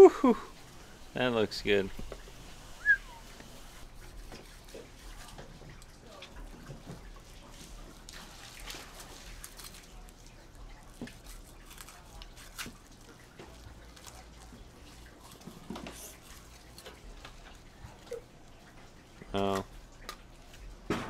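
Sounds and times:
low steady hum: 0:00.0 - 0:21.0
knife cutting wet fish flesh: 0:10.8 - 0:14.3.

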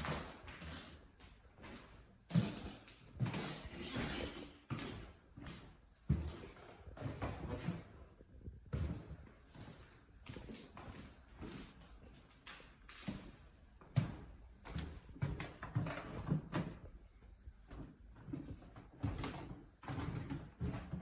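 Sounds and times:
heavy footsteps on hardwood floor: 0:04.7 - 0:12.2, 0:13.1 - 0:17.0, 0:17.6 - 0:21.0.

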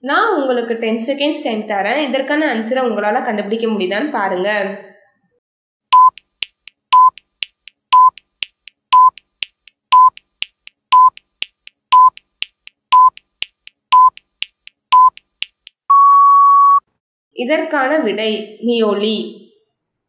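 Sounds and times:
high electronic beeps: 0:05.9 - 0:06.3, 0:06.9 - 0:07.3, 0:07.9 - 0:08.3, 0:08.9 - 0:09.3, 0:09.9 - 0:10.3, 0:10.9 - 0:11.3, 0:11.9 - 0:12.3, 0:12.9 - 0:13.3, 0:13.9 - 0:14.3, 0:14.9 - 0:16.9.

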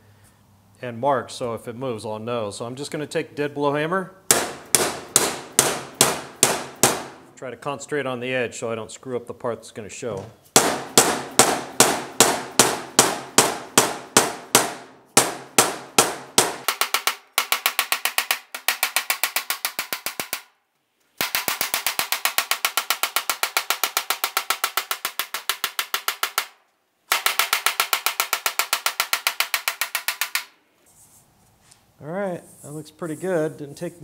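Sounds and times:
hammer striking sheet metal: 0:04.3 - 0:07.3, 0:10.6 - 0:20.5, 0:21.2 - 0:30.6.

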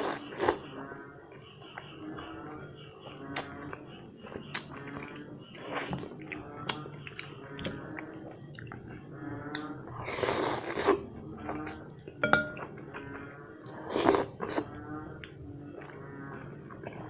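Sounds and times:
slurping noodles: 0:00.0 - 0:00.6, 0:10.0 - 0:11.8, 0:13.8 - 0:14.7
wet chewing: 0:03.3 - 0:17.0.

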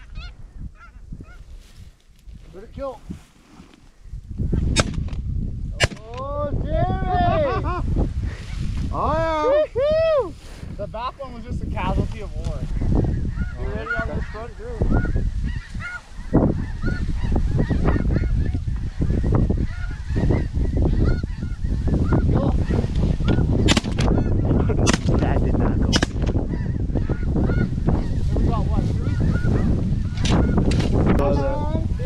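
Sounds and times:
wind rumble on microphone: 0:00.0 - 0:32.0
geese honking: 0:13.3 - 0:24.7, 0:26.4 - 0:30.7.

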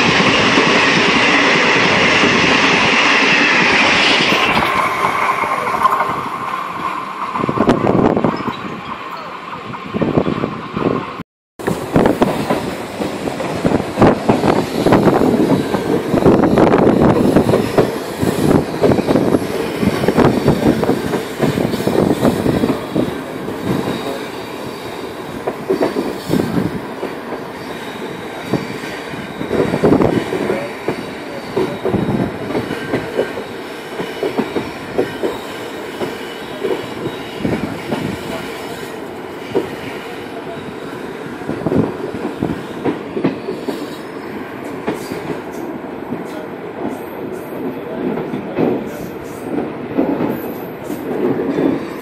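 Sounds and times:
train wheels clattering over rails: 0:11.6 - 0:52.0.

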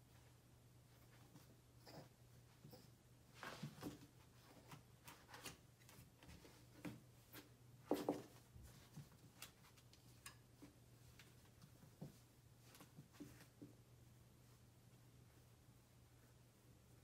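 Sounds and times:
faint steady hum: 0:00.0 - 0:17.0
puppy paws tapping on wooden floor: 0:04.7 - 0:10.4.

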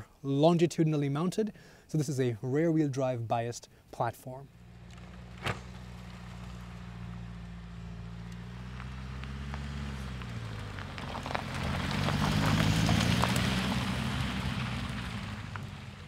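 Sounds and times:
diesel car engine driving by: 0:04.5 - 0:16.0
tyres crunching over gravel: 0:04.6 - 0:16.0.

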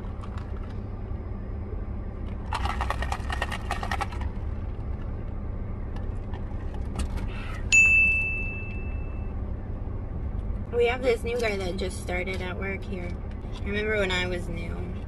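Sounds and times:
car hum: 0:00.0 - 0:15.0
ice rattling in plastic cup: 0:02.4 - 0:04.4
high ding: 0:07.7 - 0:09.3.

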